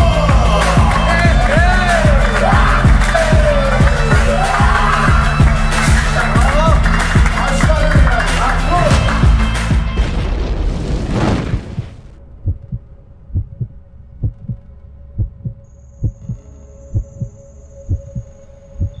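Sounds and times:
heartbeat thumps: 11.6s - 19.0s.

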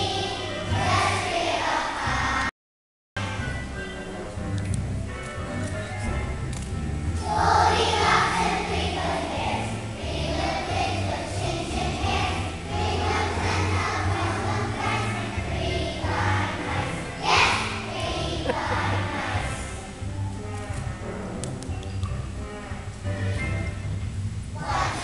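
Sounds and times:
children's choir singing: 0.0s - 2.5s, 7.2s - 20.0s, 24.6s - 25.0s
musical accompaniment with low pulse: 3.2s - 25.0s.

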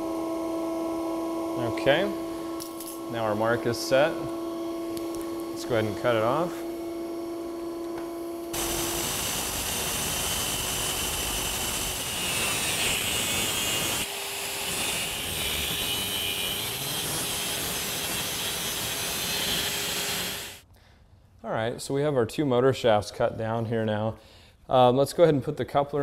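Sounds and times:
cutoff wheel grinding metal: 8.5s - 20.6s.

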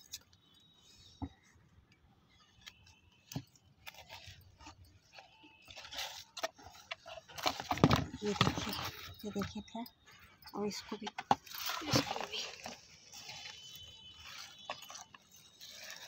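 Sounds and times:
leaves rustling: 11.6s - 16.0s.

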